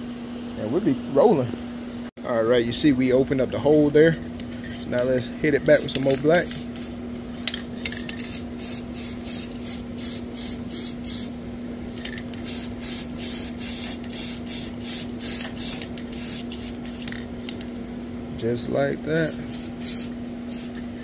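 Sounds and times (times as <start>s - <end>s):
steady low hum: 0.0s - 21.0s
spray paint can hissing: 5.8s - 7.0s, 8.2s - 11.3s, 12.4s - 17.2s, 19.2s - 20.8s.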